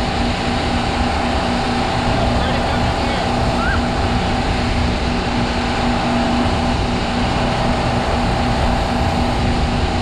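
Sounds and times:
boat engine humming: 0.0 - 10.0
churning wake rushing: 0.0 - 10.0.

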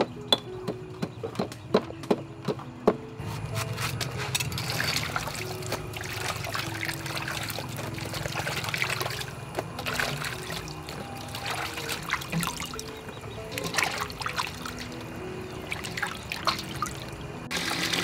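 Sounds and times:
soft background music: 0.0 - 18.0
water sloshing in basin: 3.7 - 18.0.

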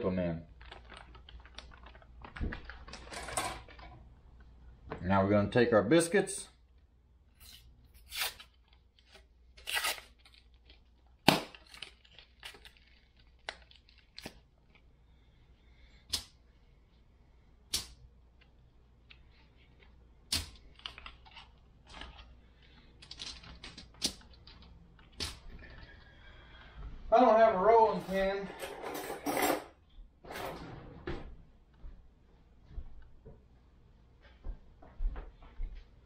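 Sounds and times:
paper wrapper tearing: 0.5 - 3.2, 7.4 - 14.4
aluminium foil crinkling: 0.5 - 3.8, 7.4 - 14.9, 20.6 - 25.9.

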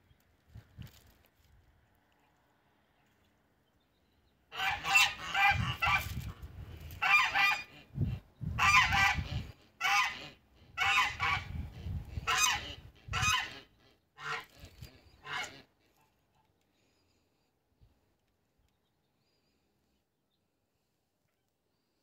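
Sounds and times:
geese honking: 4.5 - 6.2, 7.0 - 7.9, 8.6 - 11.6, 12.2 - 15.9.

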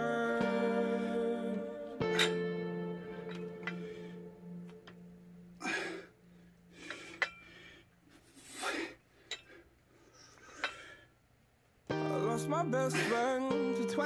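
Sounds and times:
person breathing hard: 5.6 - 11.1.

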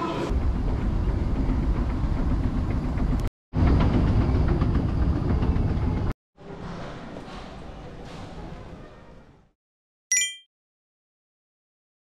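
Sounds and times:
escalator mechanical rumble: 0.3 - 6.1.

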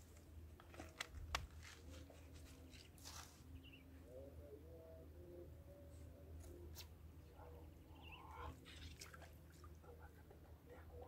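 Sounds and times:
soft rustle: 0.0 - 3.6
steady low hum: 0.0 - 11.0.

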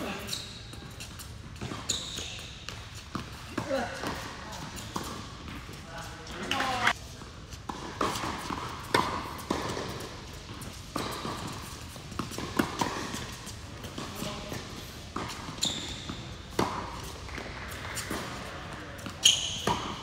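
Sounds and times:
tennis ball bouncing on court: 0.8 - 5.8, 7.6 - 20.0
tennis ball struck by rackets: 7.7 - 14.3, 16.1 - 20.0
high squeak: 19.2 - 19.7.

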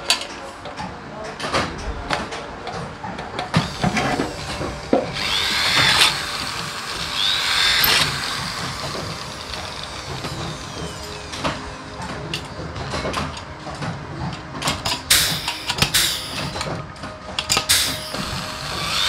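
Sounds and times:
electric drill boring into metal: 3.5 - 12.0, 15.1 - 16.7, 17.6 - 19.0.

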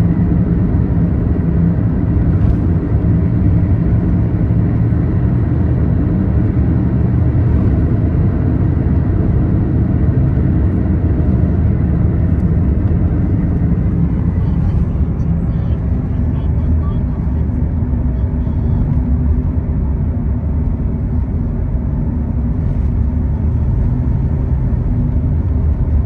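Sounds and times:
faint low drone: 0.0 - 26.0
road rumble inside car: 0.0 - 26.0.

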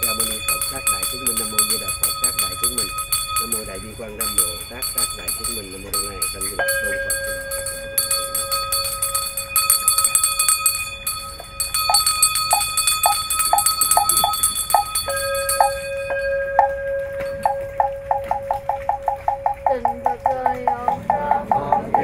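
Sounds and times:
bowl bell ringing: 0.0 - 22.0
hand bell jingling: 0.0 - 22.0
chanting: 16.5 - 22.0
wooden fish knocking: 16.5 - 22.0.

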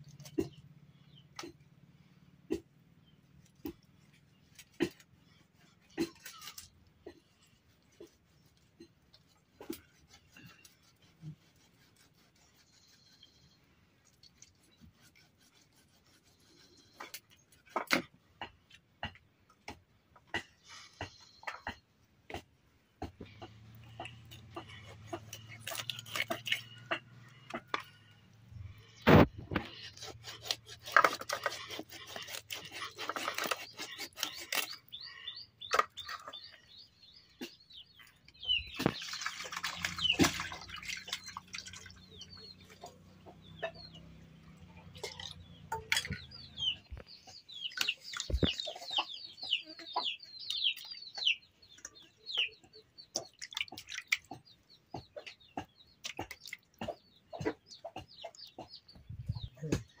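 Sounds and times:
knife scraping fish: 9.6 - 13.4, 14.1 - 17.3, 24.4 - 26.9, 29.6 - 34.9
birds chirping: 16.3 - 60.0.

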